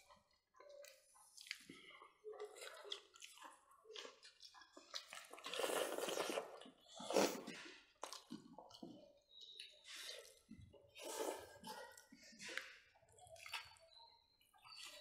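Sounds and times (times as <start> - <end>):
people chewing: 0.0 - 15.0.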